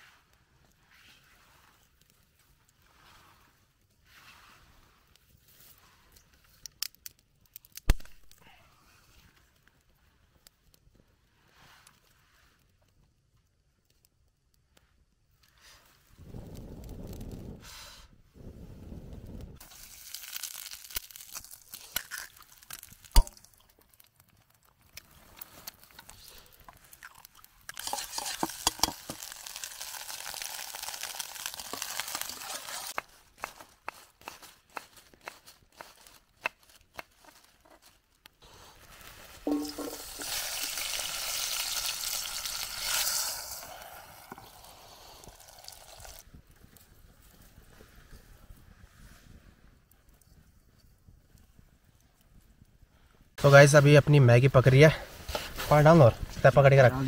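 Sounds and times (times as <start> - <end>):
food sizzling in a pan: 19.6 - 23.3, 27.2 - 33.0, 39.4 - 46.2
stirring clicks and scrapes: 21.4 - 38.0.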